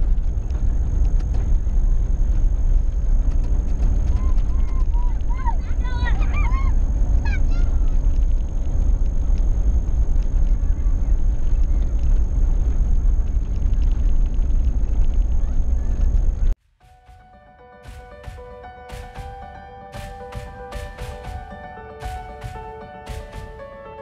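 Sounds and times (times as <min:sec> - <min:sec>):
vehicle rumble from inside: 0:00.0 - 0:16.6
children calling: 0:04.1 - 0:08.0.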